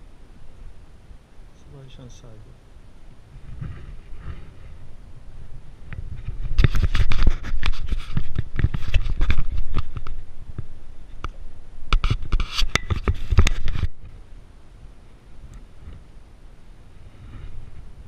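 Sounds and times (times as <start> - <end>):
clothing brushing against camera: 3.3 - 4.9, 6.0 - 10.2, 12.0 - 14.0, 17.0 - 18.0.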